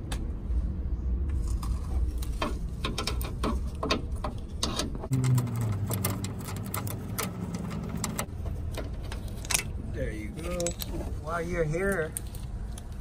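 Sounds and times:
low hum: 0:05.0 - 0:09.9.

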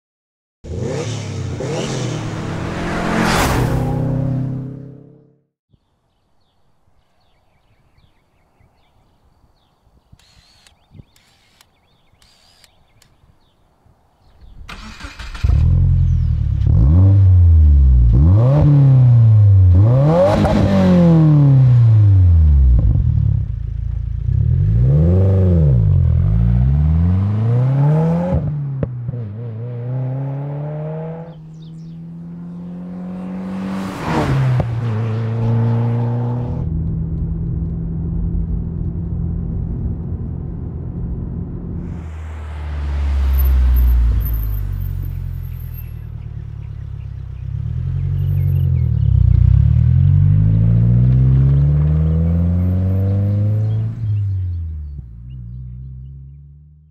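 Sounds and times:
car engine revving and accelerating: 0:00.6 - 0:05.4, 0:14.8 - 0:23.6, 0:24.2 - 0:37.0, 0:37.6 - 0:54.5.

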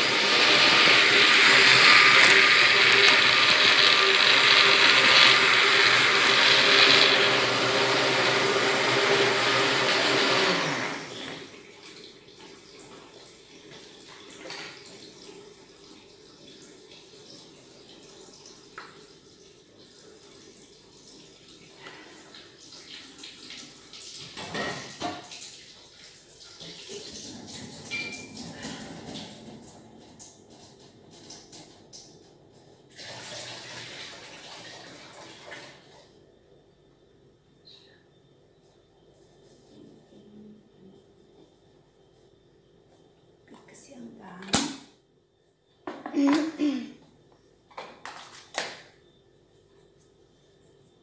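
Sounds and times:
electric blender whirring: 0:00.0 - 0:11.6.

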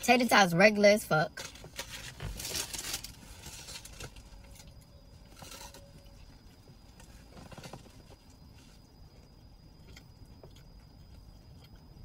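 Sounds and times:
wrapper rustling and crinkling: 0:01.4 - 0:04.7.

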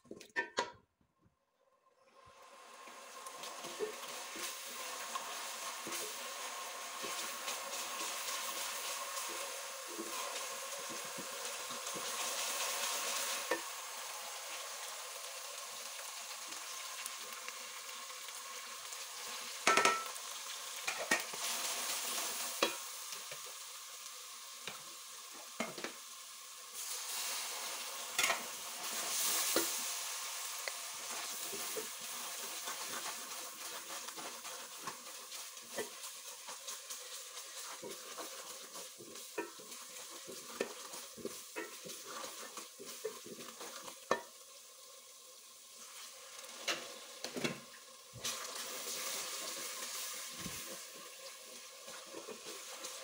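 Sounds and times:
onions sizzling in oil: 0:01.9 - 0:53.0
spatula knocking and scraping pot: 0:19.6 - 0:20.1.

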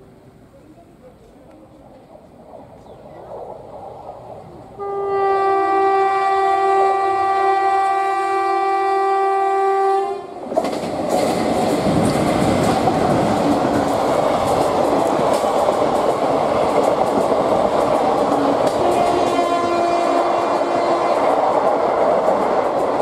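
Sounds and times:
locomotive horn: 0:04.8 - 0:10.5, 0:18.6 - 0:21.5
train wheels clattering over rail joints: 0:10.4 - 0:23.0.

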